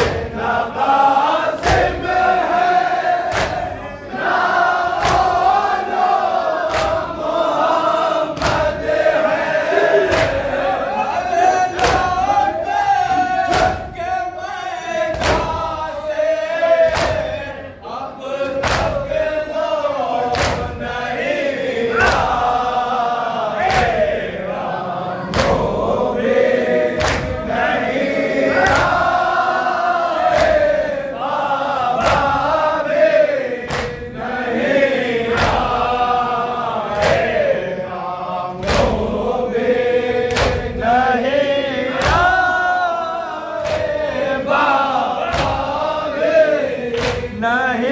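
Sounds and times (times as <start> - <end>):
lead reciter: 0.0 - 47.9
men chanting in unison: 0.0 - 47.9
hands slapping chests: 1.6 - 9.1, 10.0 - 10.7, 11.7 - 12.4, 13.3 - 14.0, 15.1 - 15.9, 16.9 - 17.4, 18.6 - 19.2, 20.3 - 20.8, 22.0 - 22.6, 23.6 - 24.1, 25.3 - 25.9, 26.9 - 27.5, 28.6 - 29.4, 30.2 - 30.9, 31.9 - 32.5, 33.6 - 34.1, 35.3 - 35.9, 36.9 - 37.5, 38.6 - 39.2, 40.2 - 40.9, 41.9 - 42.5, 43.6 - 45.9, 46.9 - 47.4.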